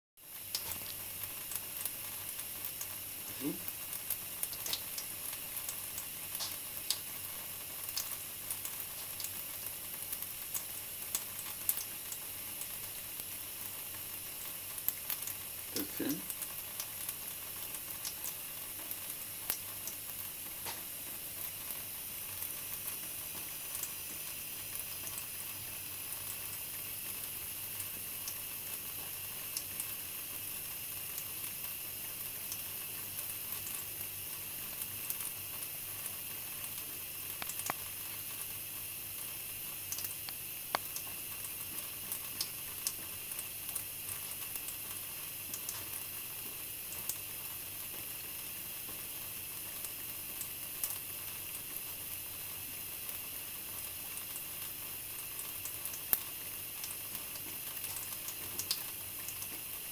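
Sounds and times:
tap water running into sink: 0.3 - 59.9
faint ticks: 37.4 - 37.9.

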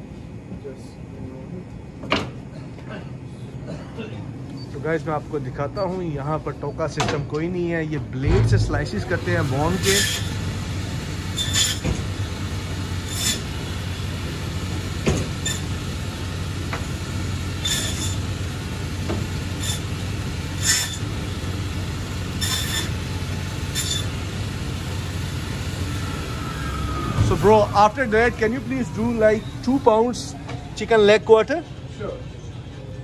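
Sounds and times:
band saw motor hum: 8.3 - 32.0
saw blade rasping through bone: 9.8 - 10.4, 13.1 - 13.5, 17.6 - 18.2, 19.6 - 19.9, 20.6 - 21.0, 22.4 - 22.9, 23.7 - 24.1.

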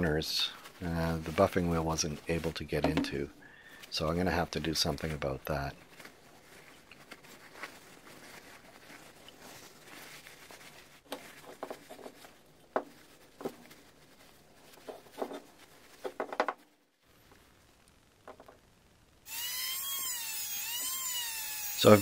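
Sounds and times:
paper towel rubbing on metal: 6.0 - 16.0.

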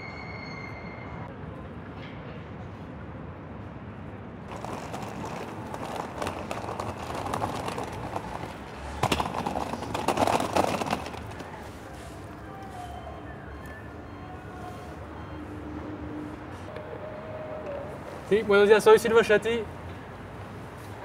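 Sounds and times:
low city hum: 0.0 - 21.0
suitcase wheels rattling on pavement: 4.4 - 13.3.

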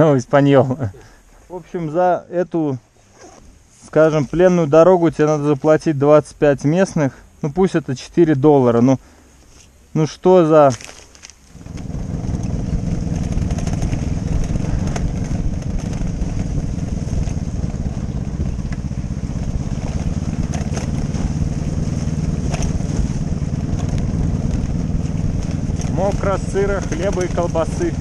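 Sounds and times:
motorcycle engine running: 11.5 - 28.0.

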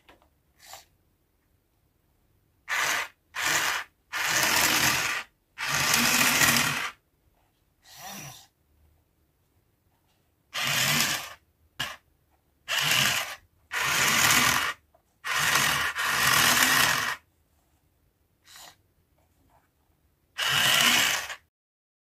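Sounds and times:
small electric motor whirring: 2.7 - 7.0, 10.6 - 12.0, 12.7 - 17.2, 20.4 - 21.4.

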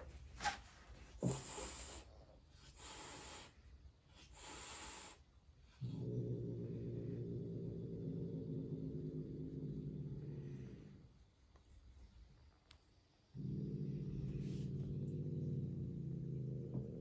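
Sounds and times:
cat hissing: 0.4 - 5.3
cat growling low: 1.2 - 3.6, 4.2 - 11.3, 13.3 - 17.0.

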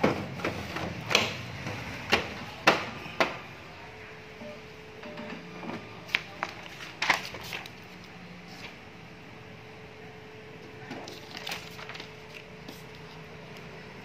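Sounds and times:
copier humming: 0.0 - 14.0
paper rustling: 6.1 - 7.8, 11.0 - 13.2.

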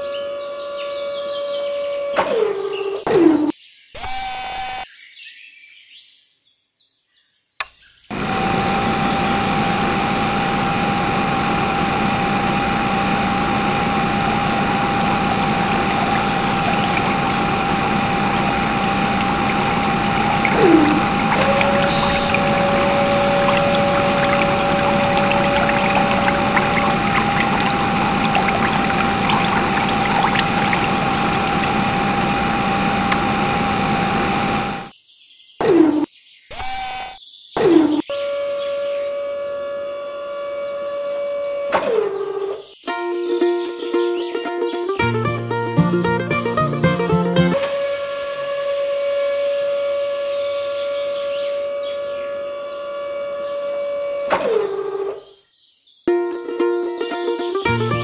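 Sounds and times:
electric water pump whine: 8.1 - 34.9, 47.6 - 54.3
water pouring and splashing: 14.2 - 33.5.

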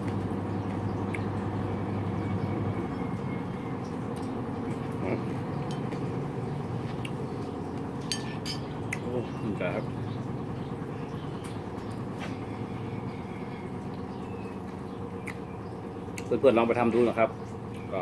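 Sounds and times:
spoon clinking on ceramic bowl: 8.1 - 8.7.

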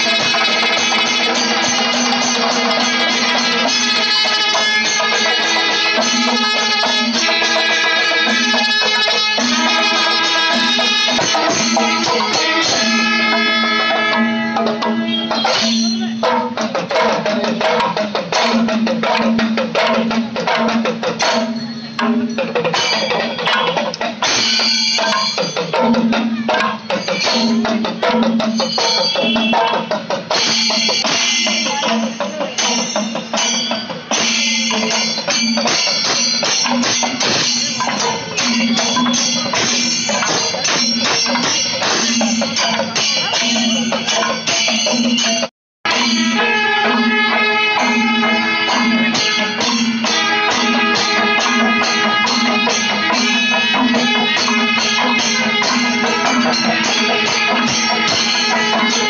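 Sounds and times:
drums beating fast: 0.0 - 59.0
brass horns blasting chords: 45.9 - 59.0.

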